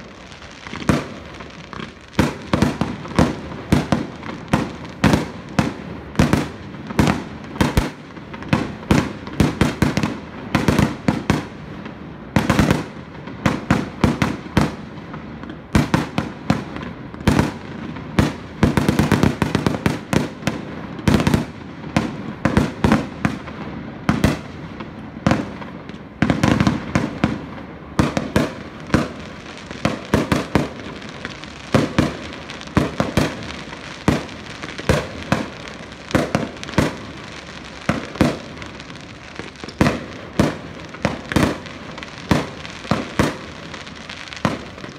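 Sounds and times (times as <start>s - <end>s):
fireworks bangs and pops: 0.0s - 44.9s.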